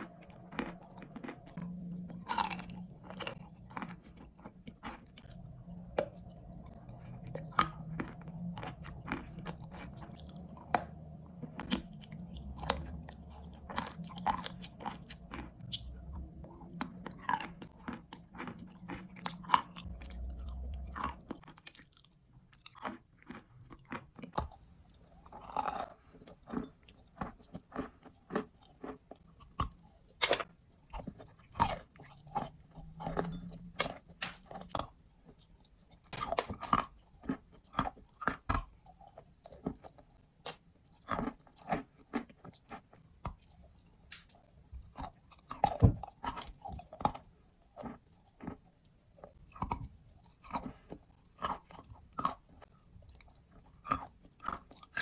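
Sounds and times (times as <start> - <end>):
quiet chewing: 0.0 - 55.0.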